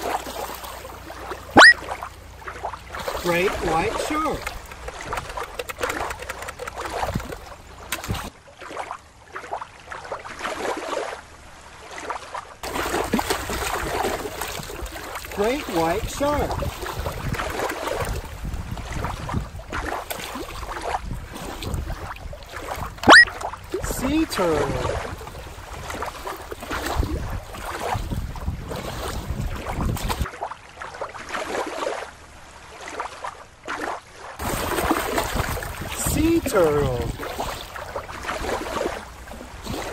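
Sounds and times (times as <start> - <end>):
water lapping on rocks: 0.0 - 39.9
wind buffeting microphone: 3.5 - 8.3, 15.8 - 30.2, 34.4 - 39.9.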